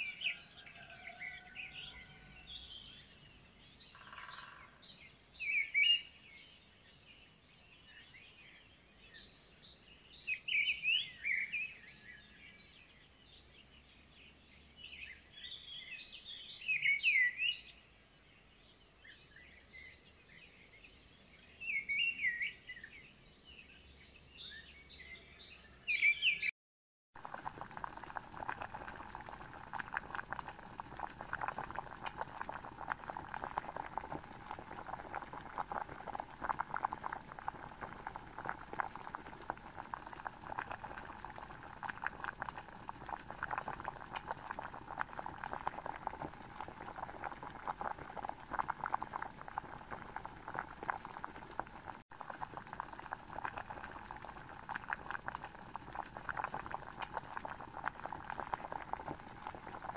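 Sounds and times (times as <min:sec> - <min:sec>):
thick sauce bubbling in a pan: 0:00.0 - 0:06.5, 0:10.1 - 0:12.7, 0:13.3 - 0:17.6, 0:27.2 - 0:59.9.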